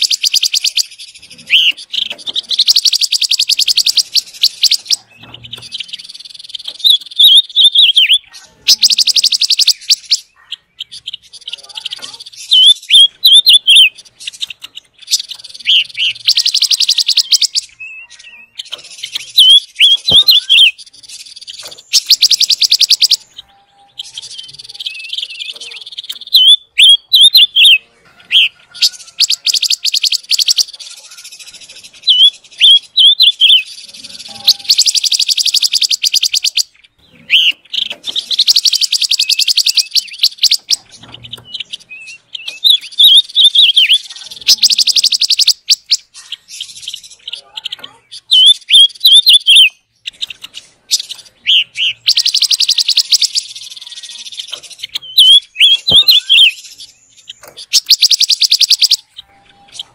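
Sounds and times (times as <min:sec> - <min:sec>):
bird trilling and chirping: 0:00.0 - 0:59.9.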